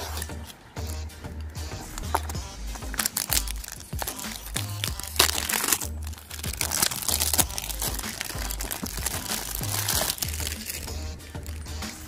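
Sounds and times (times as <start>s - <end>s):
cellophane crackling: 2.0s - 11.8s.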